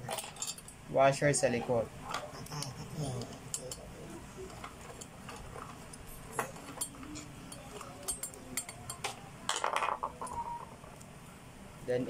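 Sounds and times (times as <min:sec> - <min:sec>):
metal washer and screw clinking: 0:00.0 - 0:00.8.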